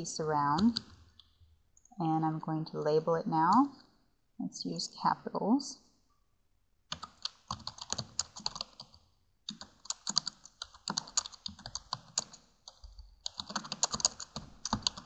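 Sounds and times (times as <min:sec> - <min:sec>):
typing on a computer keyboard: 0:00.6 - 0:01.0, 0:06.9 - 0:15.0.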